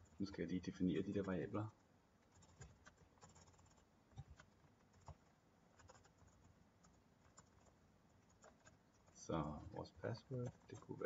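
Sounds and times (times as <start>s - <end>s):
computer keyboard typing: 2.2s - 11.0s.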